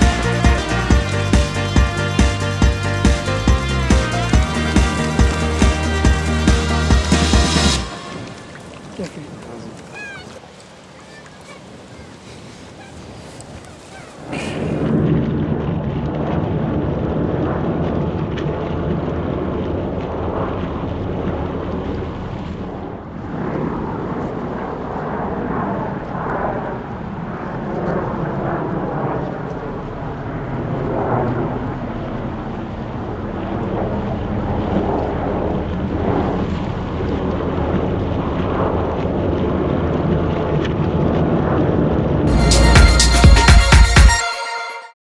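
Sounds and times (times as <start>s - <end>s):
wind buffeting microphone: 8.2s - 42.3s.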